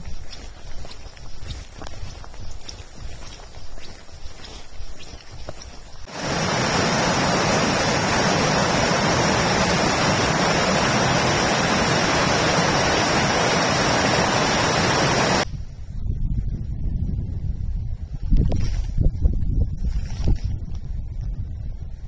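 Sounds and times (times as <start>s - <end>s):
creek rushing over rocks: 6.0s - 15.4s.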